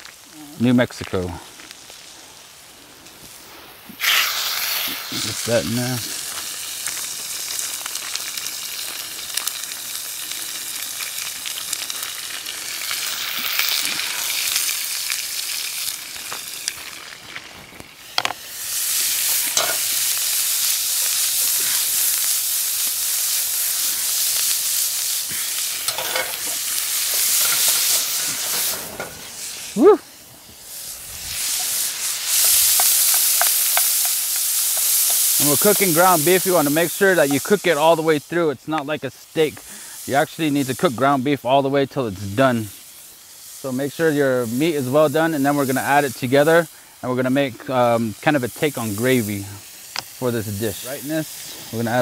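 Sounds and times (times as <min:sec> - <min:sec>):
meat sizzling in oil: 0:00.0 - 0:52.0
spoon scraping in a pan: 0:19.3 - 0:20.0, 0:25.8 - 0:29.2.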